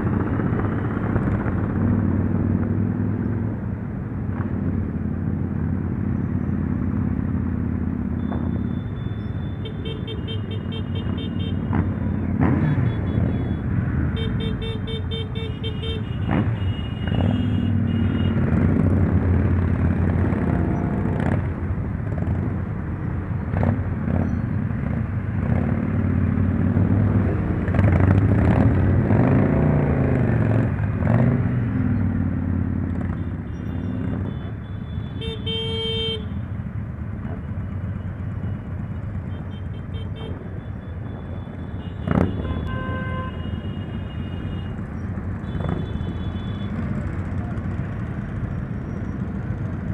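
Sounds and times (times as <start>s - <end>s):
motorcycle engines droning and revving: 0.0s - 49.9s
motorcycle horns tooting: 8.6s - 18.5s, 33.1s - 36.4s, 39.2s - 44.8s, 45.4s - 47.0s.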